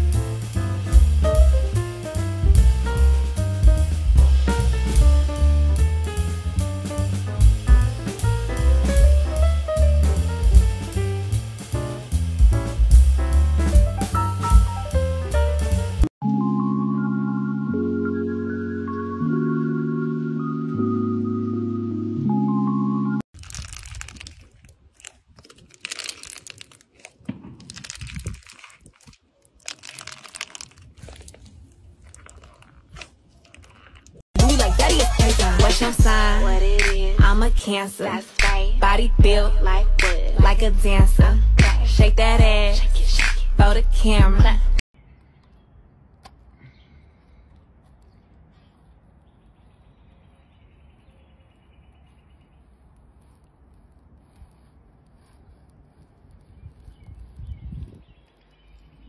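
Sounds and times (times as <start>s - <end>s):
crunchy slime being kneaded: 23.3s - 34.2s.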